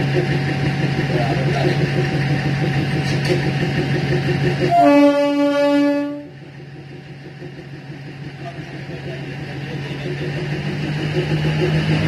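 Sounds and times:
diesel engine drone: 0.0s - 12.0s
train horn blast: 4.6s - 6.4s.

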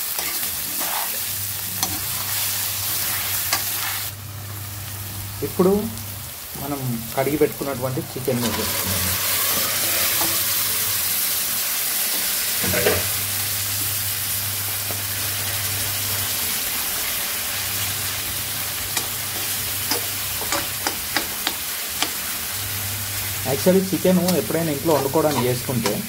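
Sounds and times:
chicken sizzling in hot oil: 0.0s - 26.0s.

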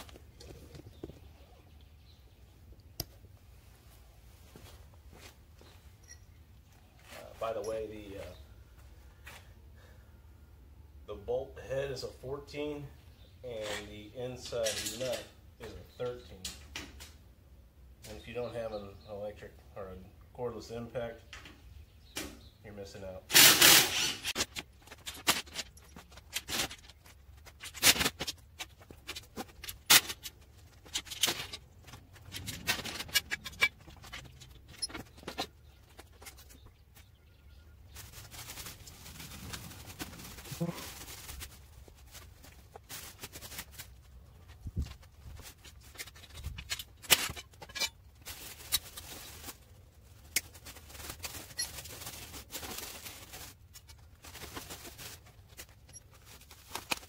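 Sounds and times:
plastic wrap rustling: 37.8s - 57.0s.

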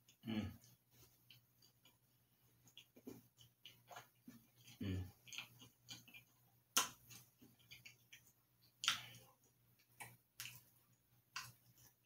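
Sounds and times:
wet mouth clicks and smacks: 2.6s - 10.7s, 11.3s - 11.9s.

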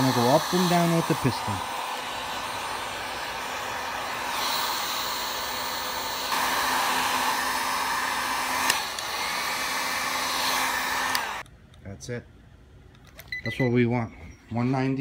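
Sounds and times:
hot-air blower running: 0.0s - 11.4s.

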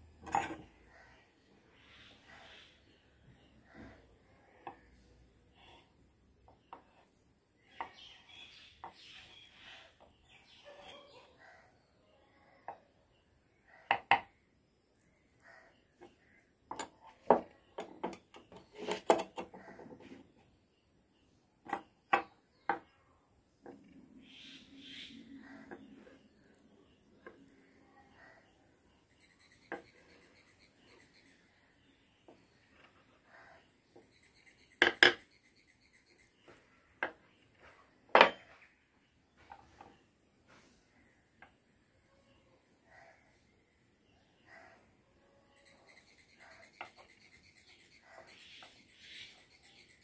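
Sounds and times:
steel chisels knocking and clinking: 0.2s - 0.7s
metal tools knocking on wood: 16.7s - 19.6s, 34.8s - 35.3s, 38.1s - 38.6s.

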